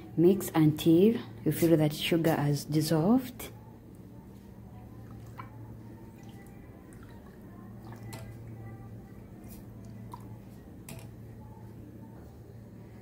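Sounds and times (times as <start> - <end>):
steady low hum: 0.0 - 13.0
liquid swishing in a pot: 4.4 - 10.8.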